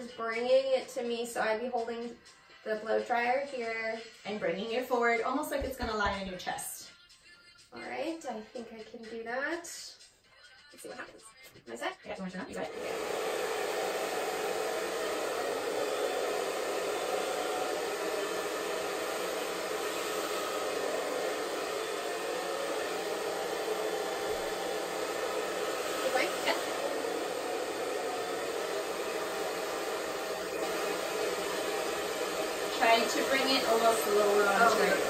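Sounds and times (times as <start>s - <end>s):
hair dryer blowing: 12.2s - 35.0s.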